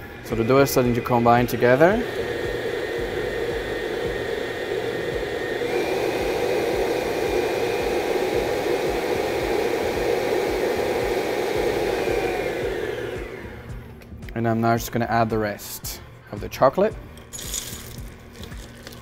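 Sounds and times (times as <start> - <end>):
stand mixer motor whine: 0.0 - 14.0.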